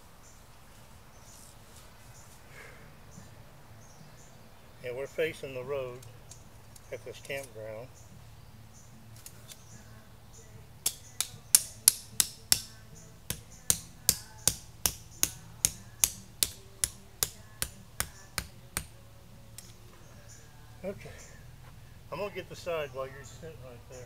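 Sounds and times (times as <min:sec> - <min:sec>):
hammer striking tent stake: 0:10.8 - 0:19.0.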